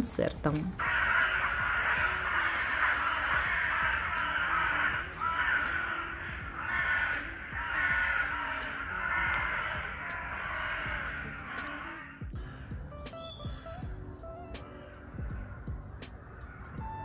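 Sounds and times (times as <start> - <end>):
crows cawing: 0.8 - 12.4, 14.6 - 17.0.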